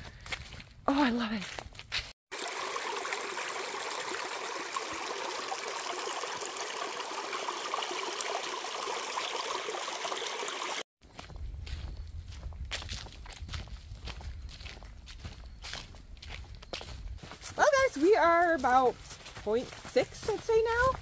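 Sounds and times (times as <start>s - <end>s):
footsteps on a trail: 0.0s - 2.2s, 11.0s - 21.0s
stream running over rocks: 2.3s - 10.9s.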